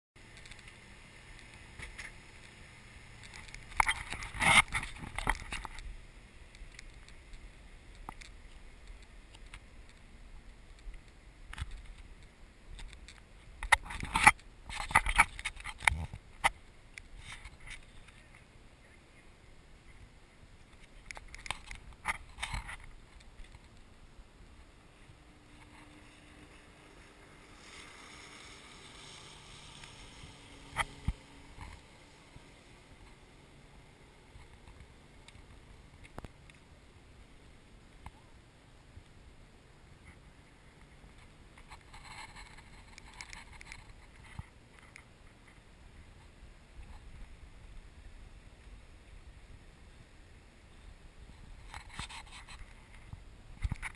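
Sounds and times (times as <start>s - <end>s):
crackling and clicking: 0.2s - 5.9s, 6.5s - 18.5s, 19.8s - 36.7s, 40.0s - 45.6s
distant boat engine hum: 0.2s - 12.6s, 22.8s - 38.7s.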